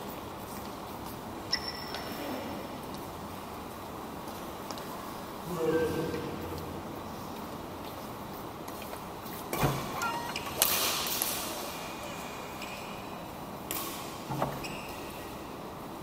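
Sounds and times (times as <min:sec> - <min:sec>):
shoes squeaking on court floor: 0:00.5 - 0:02.2, 0:08.7 - 0:11.0, 0:14.4 - 0:15.5.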